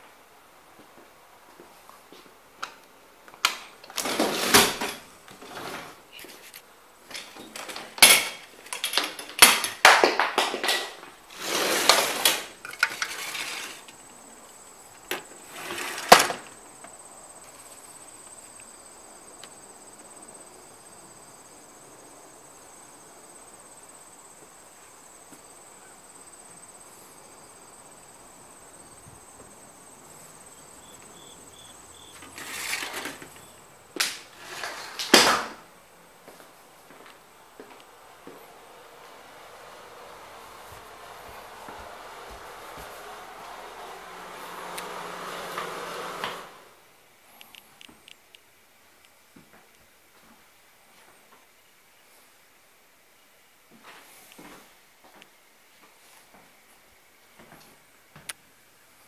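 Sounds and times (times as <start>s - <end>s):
screen door rattling and sliding: 3.6s - 6.2s, 7.0s - 9.8s, 10.5s - 14.1s, 15.0s - 17.0s, 28.5s - 35.8s, 36.7s - 46.8s
high-pitched insect trill: 16.5s - 33.8s.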